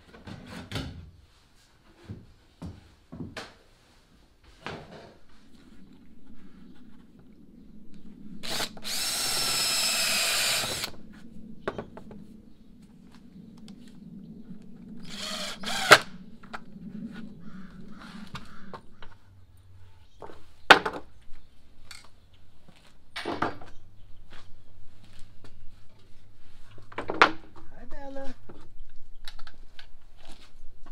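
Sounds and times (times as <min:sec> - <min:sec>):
cordless drill whining into plywood: 0:08.4 - 0:11.0, 0:15.0 - 0:16.1.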